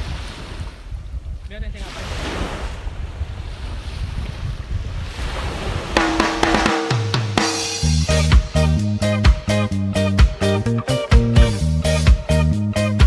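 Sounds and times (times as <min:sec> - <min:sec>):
wind buffeting microphone: 0:00.0 - 0:06.4
surf washing: 0:00.0 - 0:08.0
funk music with drums and bass: 0:06.0 - 0:13.0.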